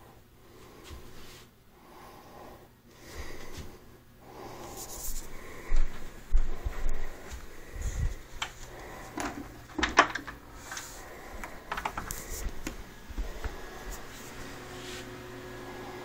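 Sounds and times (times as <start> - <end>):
footsteps: 0.6 - 1.5, 3.1 - 3.8, 4.4 - 15.2
sharp clicks and knocks: 9.2 - 10.8, 11.4 - 12.8.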